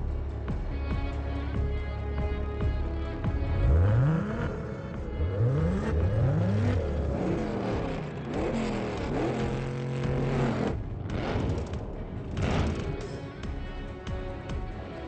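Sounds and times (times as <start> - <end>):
sedan engine revving: 0.2 - 15.0
muscle car engine revving: 3.2 - 13.9.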